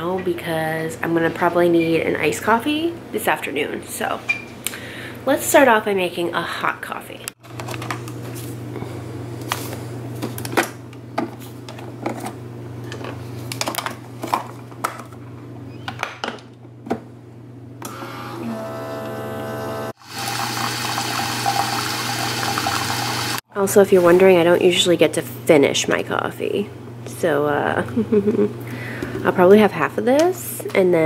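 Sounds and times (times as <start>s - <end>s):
coffee maker humming: 17.8s - 23.4s
coffee pouring into mug: 20.0s - 23.4s.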